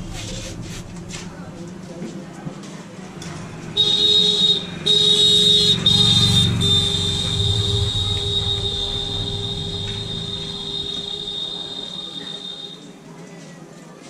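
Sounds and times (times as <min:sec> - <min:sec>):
low rumble: 0:00.0 - 0:02.0, 0:06.6 - 0:12.5
high-pitched whistling squeal: 0:03.8 - 0:13.0.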